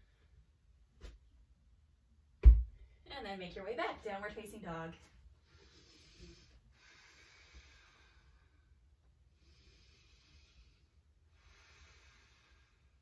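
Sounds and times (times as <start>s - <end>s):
woman breathing deeply: 5.4s - 13.0s.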